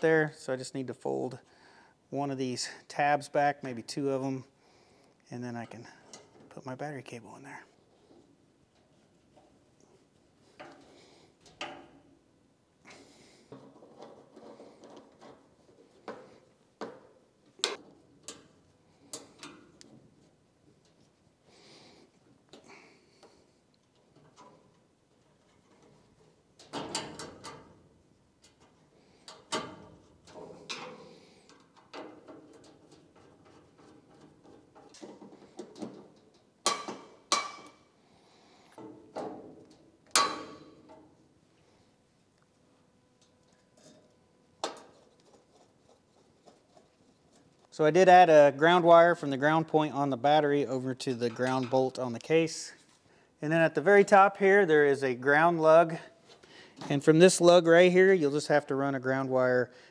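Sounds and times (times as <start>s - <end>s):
tools tapping and rattling on metal: 7.9s - 12.1s, 12.8s - 21.1s, 22.5s - 37.9s, 38.6s - 41.2s, 43.2s - 47.7s.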